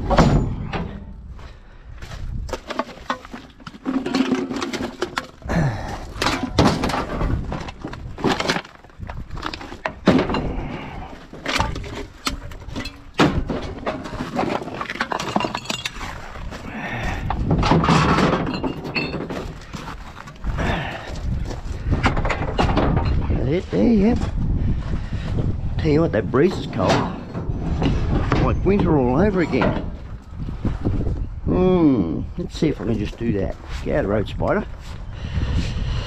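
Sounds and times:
items clattering in a bin: 2.5s - 16.2s, 17.3s - 20.6s.

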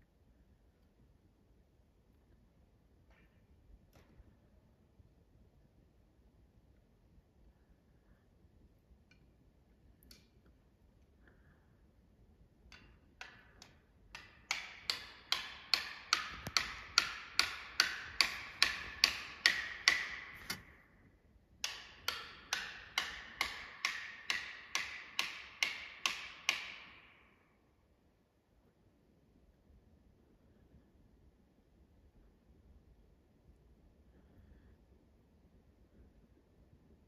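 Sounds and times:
wedges being pounded: 12.7s - 20.6s, 21.6s - 27.0s.

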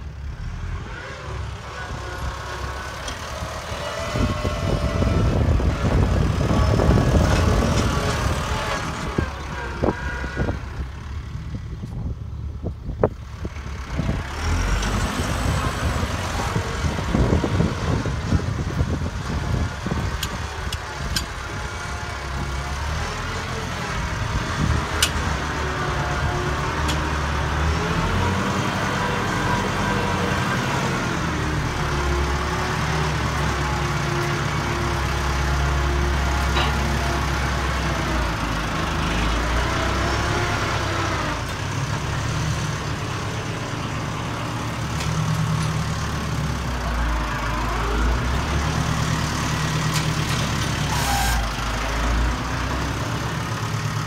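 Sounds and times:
tractor diesel engine running: 0.0s - 54.0s.

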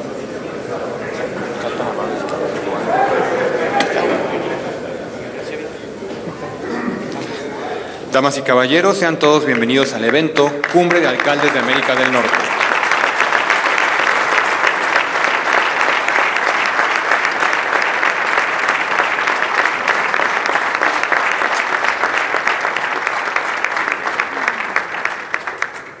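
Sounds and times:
audience applauding: 8.9s - 26.0s.

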